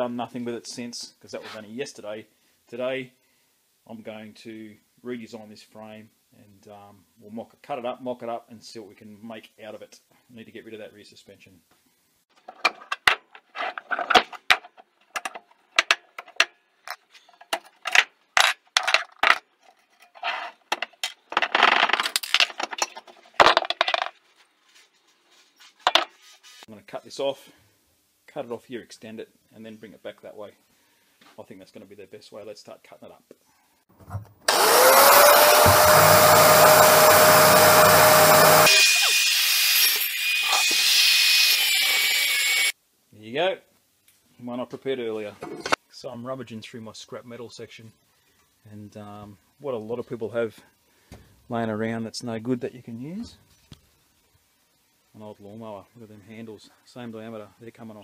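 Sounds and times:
metal parts clinking and knocking: 0:12.4 - 0:24.2
angle grinder cutting steel: 0:34.5 - 0:42.7.

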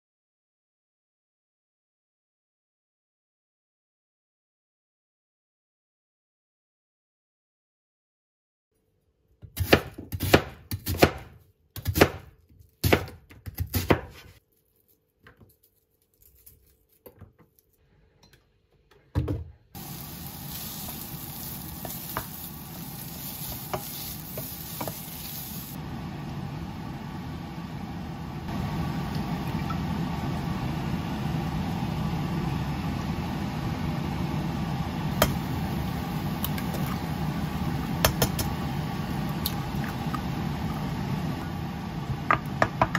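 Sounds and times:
knife chopping on wooden board: 0:09.5 - 0:14.3
onion sizzling in pan: 0:19.8 - 0:42.9
wooden spatula stirring: 0:20.3 - 0:25.8.

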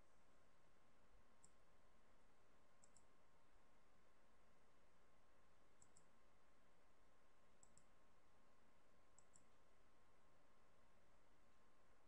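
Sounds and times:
computer mouse clicks: 0:01.4 - 0:01.6, 0:02.8 - 0:03.2, 0:05.7 - 0:06.2, 0:07.6 - 0:08.0, 0:09.1 - 0:09.6.

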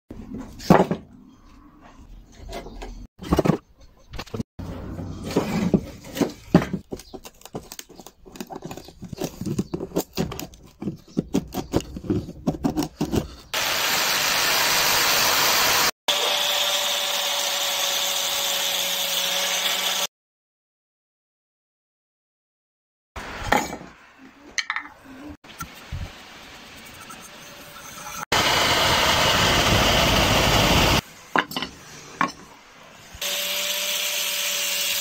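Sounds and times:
power sander running: 0:13.6 - 0:20.1, 0:28.3 - 0:31.0, 0:33.2 - 0:35.0.

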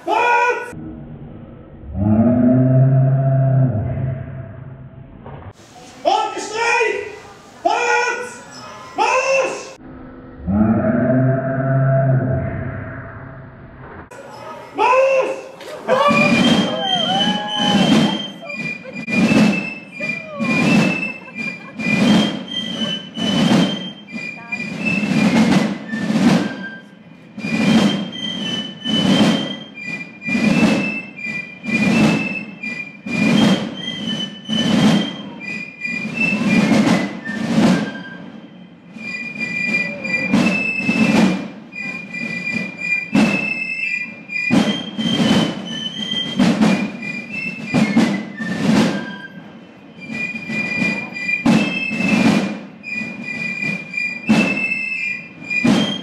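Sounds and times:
shrill piccolo melody: 0:08.4 - 0:09.8, 0:15.8 - 0:56.0
heavy drum strokes: 0:15.8 - 0:43.6, 0:44.3 - 0:49.2, 0:50.0 - 0:56.0.

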